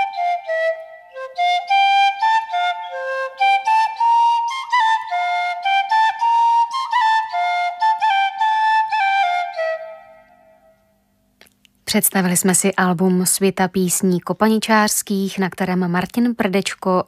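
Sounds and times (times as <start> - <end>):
bamboo flute folk melody: 0.0 - 11.0.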